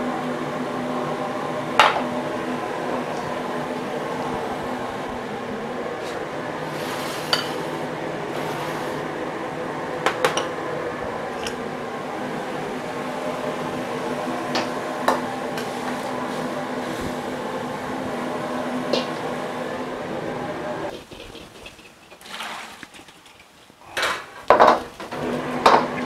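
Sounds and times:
gas burners rushing: 0.0s - 21.4s, 24.0s - 26.0s
ladle clinking against woks: 7.3s - 7.7s.

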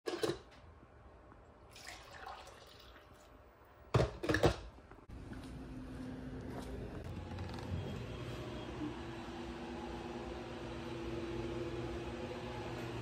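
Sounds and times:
coffee pouring into mug: 1.7s - 3.3s.

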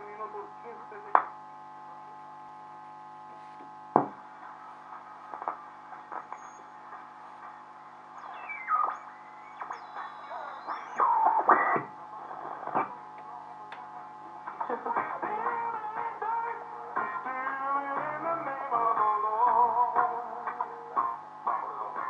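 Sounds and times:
radio hum and crackle: 0.0s - 22.0s
radio squeals: 4.4s - 13.0s
radio whistle gliding down: 8.2s - 11.5s.

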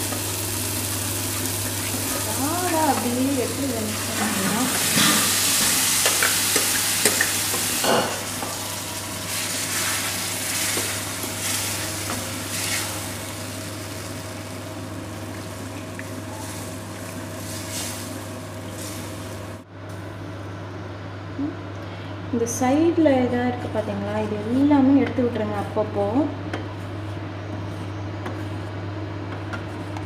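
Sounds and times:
food sizzling in a pan: 0.0s - 19.6s
steady low hum: 0.0s - 30.0s.

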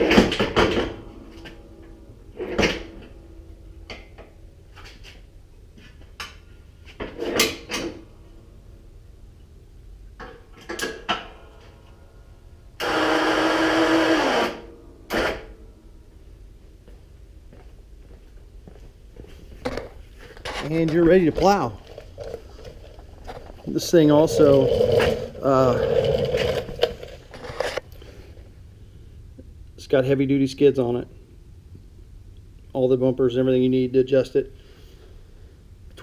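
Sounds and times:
electric winch motor running: 12.8s - 15.5s, 24.2s - 27.2s.

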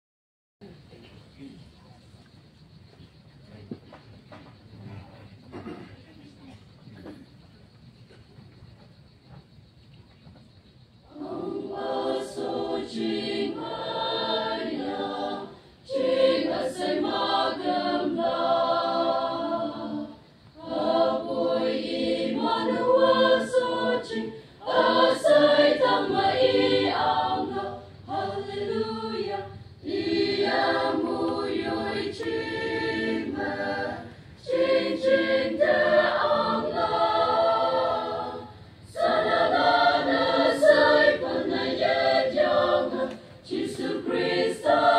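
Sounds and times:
choir breaths: 11.0s - 44.9s
choir singing: 11.1s - 44.9s.

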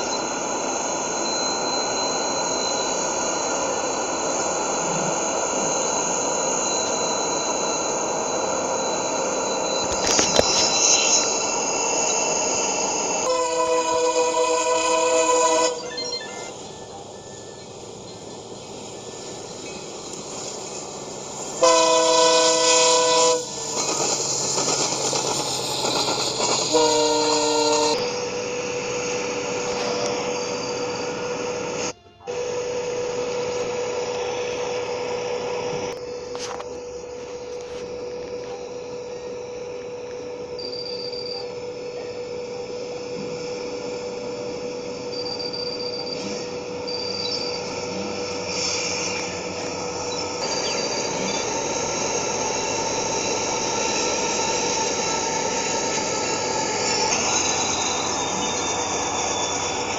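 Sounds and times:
locomotive air horn blasts: 13.2s - 15.8s, 21.6s - 23.6s, 26.6s - 28.1s.

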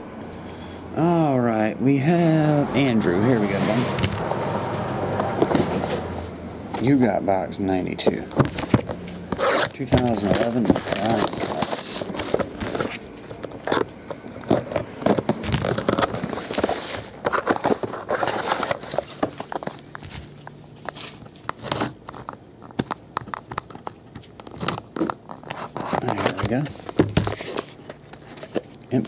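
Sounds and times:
cardboard box sliding and scraping: 3.3s - 4.0s.

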